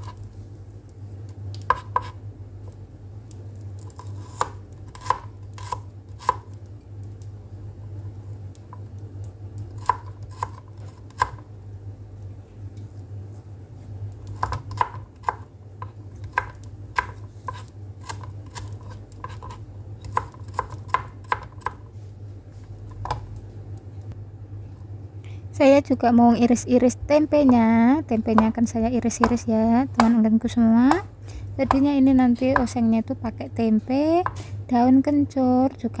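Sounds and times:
knife chopping on cutting board: 1.6s - 2.2s, 3.9s - 6.5s, 9.8s - 11.4s, 14.4s - 21.8s, 29.2s - 29.4s.

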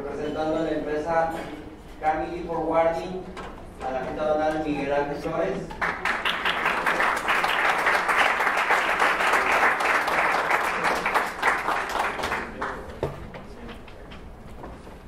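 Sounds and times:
audience applauding: 5.8s - 12.9s.

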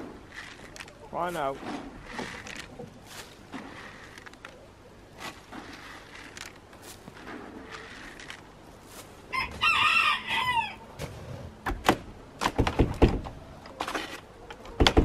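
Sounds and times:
rooster crowing: 9.3s - 10.9s.

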